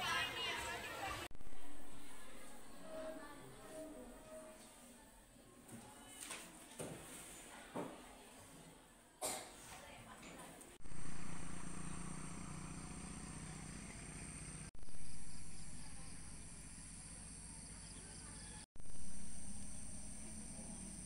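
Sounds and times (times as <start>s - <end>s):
insects droning: 10.9s - 21.0s.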